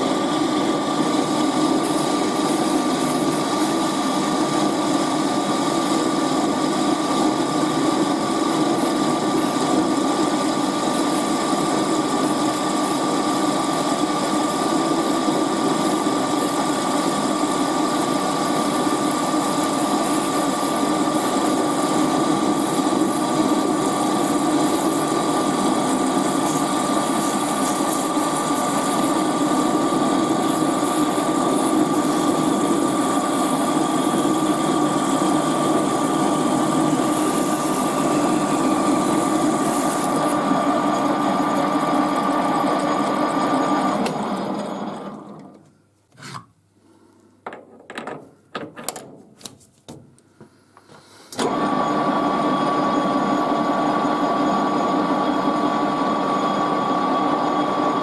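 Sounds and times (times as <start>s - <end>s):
high cutting whine: 0.0s - 45.5s
lathe motor drone: 0.0s - 45.5s, 51.4s - 58.0s.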